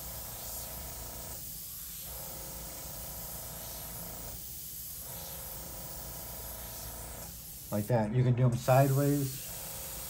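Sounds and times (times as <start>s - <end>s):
airbrush hissing: 0.0s - 10.0s.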